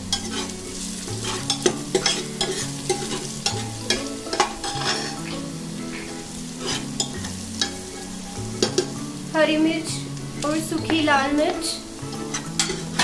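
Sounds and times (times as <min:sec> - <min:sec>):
spices sizzling in hot ghee: 0:00.0 - 0:13.0
spatula scraping pot: 0:00.1 - 0:05.3, 0:06.1 - 0:07.8, 0:12.1 - 0:13.0.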